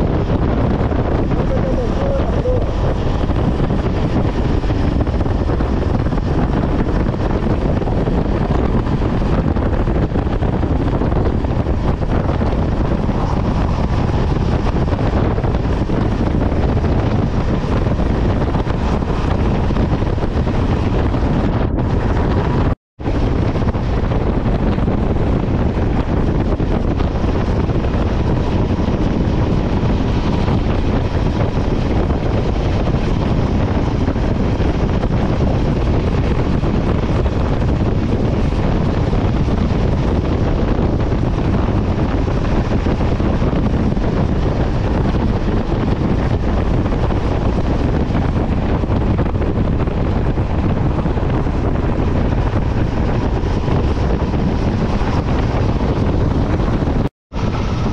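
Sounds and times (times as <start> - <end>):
motorcycle engine running: 0.0 - 57.9
road noise: 0.0 - 57.9
wind buffeting microphone: 0.0 - 57.9.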